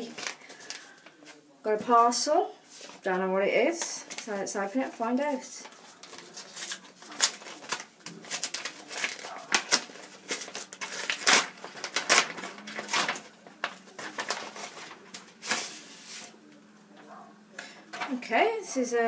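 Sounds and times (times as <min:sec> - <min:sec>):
parcel packaging rustling and ripping: 0:00.0 - 0:01.4, 0:05.6 - 0:16.3.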